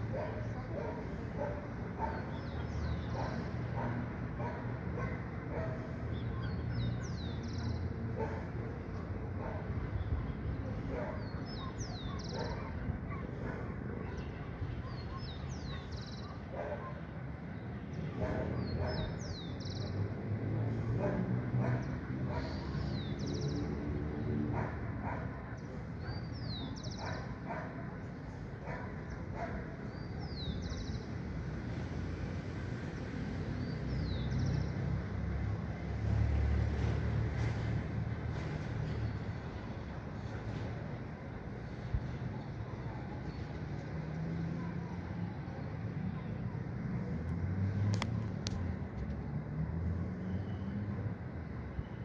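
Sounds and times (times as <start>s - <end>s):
distant dog barking: 0.0s - 8.8s, 9.4s - 9.9s, 10.8s - 14.1s, 14.8s - 17.1s, 18.1s - 19.8s, 20.7s - 23.5s, 24.4s - 30.8s
songbird singing: 0.0s - 31.3s, 33.4s - 35.0s.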